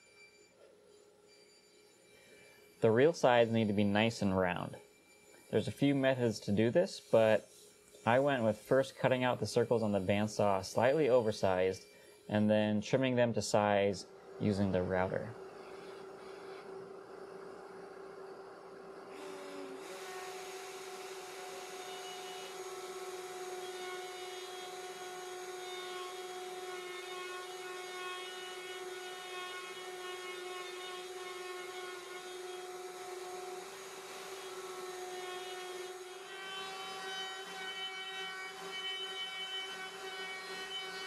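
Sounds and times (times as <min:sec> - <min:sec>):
wood router whining: 0:00.0 - 0:41.0
shop vacuum running: 0:08.0 - 0:25.8
router bit cutting plywood: 0:19.1 - 0:41.0.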